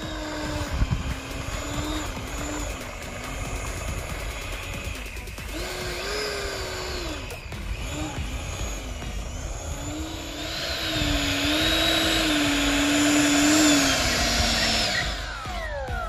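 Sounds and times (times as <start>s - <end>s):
electric ducted fan whining: 0.0s - 16.0s.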